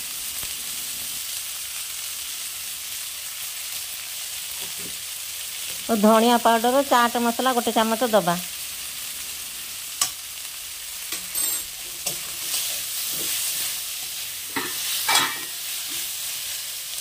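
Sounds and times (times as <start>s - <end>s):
food sizzling in oil: 0.0s - 17.0s
metal spatula scraping pan: 11.1s - 16.2s.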